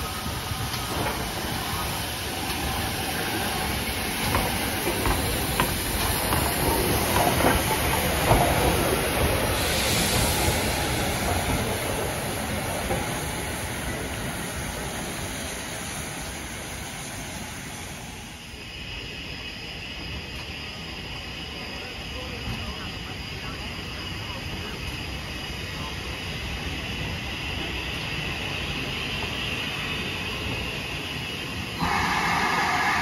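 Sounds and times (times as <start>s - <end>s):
steam hissing: 0.0s - 19.1s, 26.5s - 33.0s
steam locomotive passing: 0.0s - 23.6s, 24.4s - 33.0s
wheels clattering on rails: 4.2s - 9.5s.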